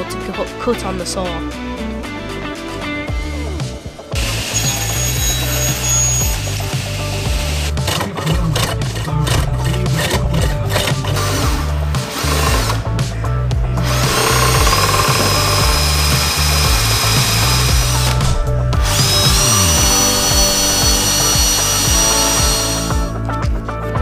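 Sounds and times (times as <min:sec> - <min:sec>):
background music: 0:00.0 - 0:24.0
cordless drill motor whine: 0:04.2 - 0:07.8, 0:13.8 - 0:23.1.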